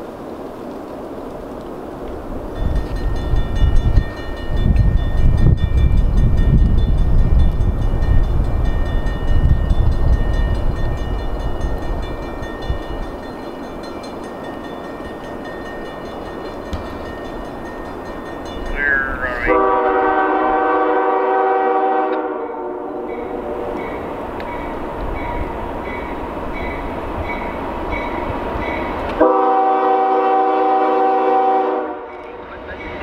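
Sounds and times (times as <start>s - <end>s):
train rolling by: 0.0s - 33.0s
locomotive air horn blasts: 19.4s - 23.7s, 29.2s - 32.2s.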